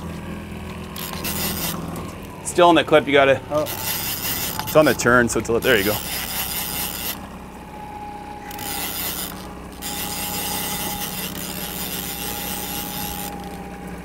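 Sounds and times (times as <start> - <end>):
boat motor drone: 0.0 - 14.0
thin whine: 0.0 - 14.0
fishing reel rasping: 1.0 - 2.0, 3.6 - 7.3, 8.4 - 13.6.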